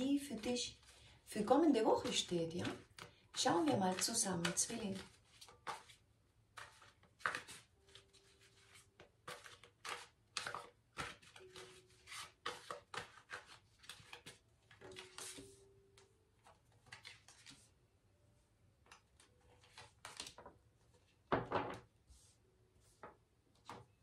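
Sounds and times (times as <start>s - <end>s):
cards shuffling: 2.0s - 6.0s, 6.6s - 15.6s, 16.4s - 17.7s, 18.9s - 20.5s.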